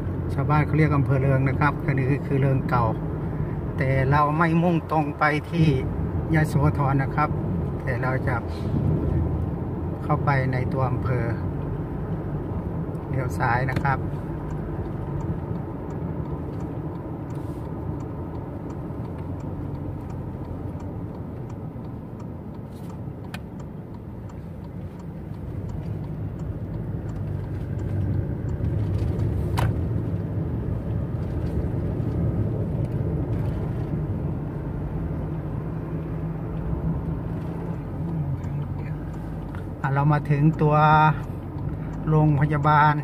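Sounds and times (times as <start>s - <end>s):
car engine and tyre drone: 0.0s - 43.0s
sharp click: 22.2s - 30.0s.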